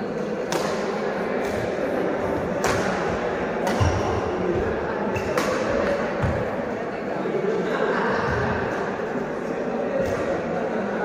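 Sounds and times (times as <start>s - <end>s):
sports hall background noise: 0.0s - 11.0s
racket striking shuttlecock: 0.4s - 1.7s, 2.6s - 4.2s, 5.2s - 6.4s.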